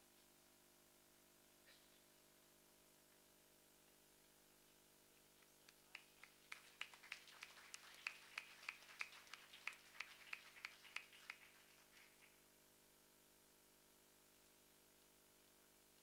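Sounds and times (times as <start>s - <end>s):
people clapping: 5.6s - 12.4s.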